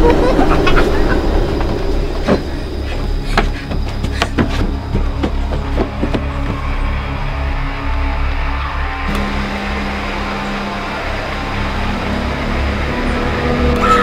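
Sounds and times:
deep steady rumble: 0.0 - 13.9
irregular knocks and clicks: 1.6 - 6.7.

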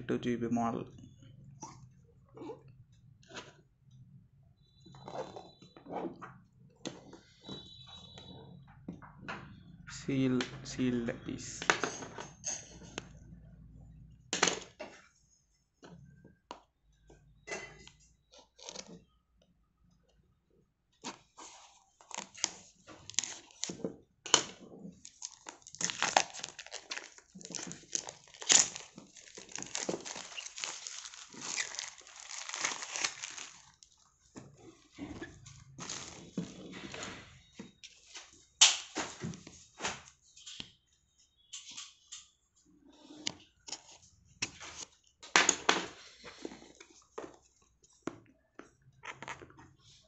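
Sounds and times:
plastic wrap crinkling and tearing: 22.0 - 23.8, 25.0 - 34.1, 35.8 - 36.4.

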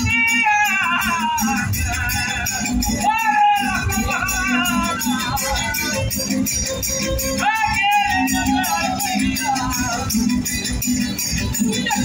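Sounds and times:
person singing long lines: 0.0 - 6.2, 7.4 - 10.3
jingling percussion beat: 0.0 - 12.0.

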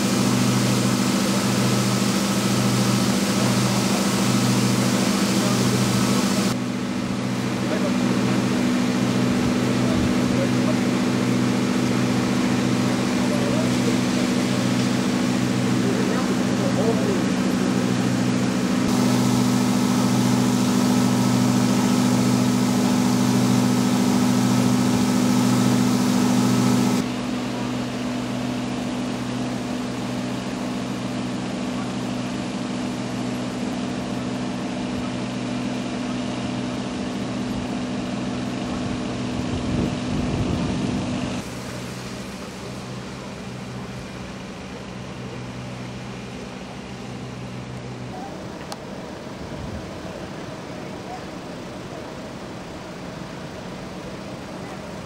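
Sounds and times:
water gushing from hose: 0.0 - 38.7
engine drone: 0.0 - 55.0.

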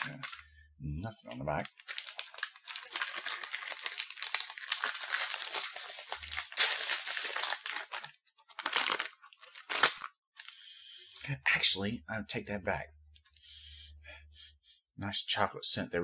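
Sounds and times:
plastic snack bag crinkling: 0.0 - 0.5, 1.2 - 10.6.

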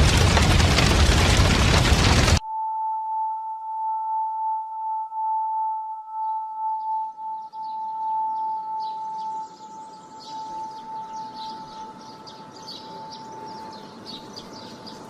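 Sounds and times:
birds chirping: 6.2 - 15.0.

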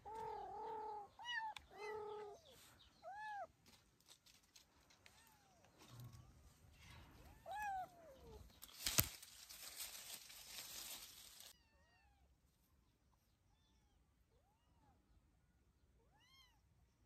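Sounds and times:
rustling in leaves and grass: 0.0 - 11.6.

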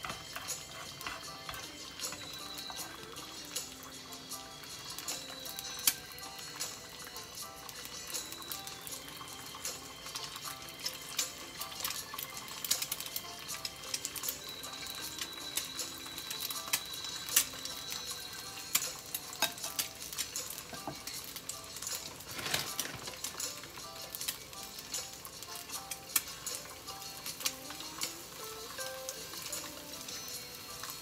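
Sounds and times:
background music: 0.0 - 31.0
food sizzling in a skillet: 0.0 - 31.0
metal tongs clicking on bowl: 18.7 - 20.8.

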